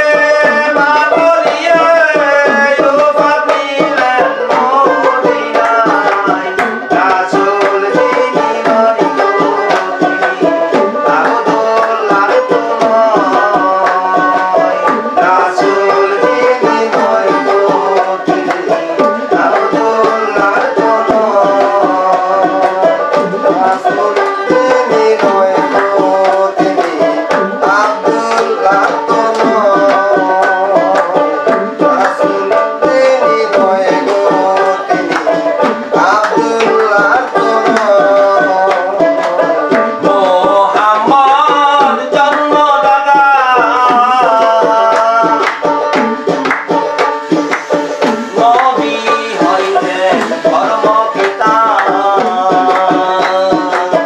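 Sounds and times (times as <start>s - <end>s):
hand drum rhythm: 0.0s - 54.0s.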